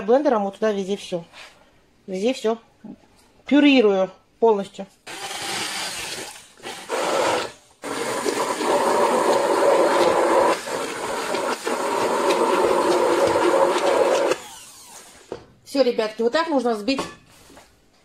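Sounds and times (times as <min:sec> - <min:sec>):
immersion blender running: 0:05.1 - 0:15.3.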